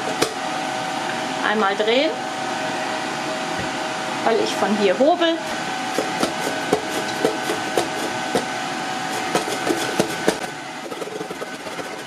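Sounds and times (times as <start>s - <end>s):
vegetable slicer knocking: 5.9s - 12.0s.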